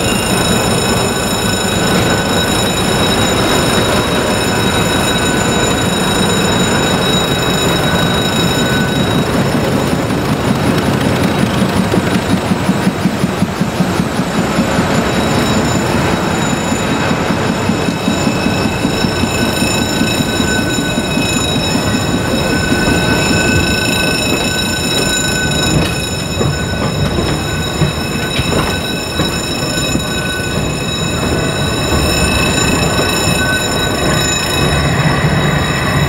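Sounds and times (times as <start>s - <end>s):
diesel locomotive passing: 0.0s - 36.0s
steady high-pitched tones: 0.0s - 36.0s
train wheels rumbling on rail: 0.0s - 36.0s.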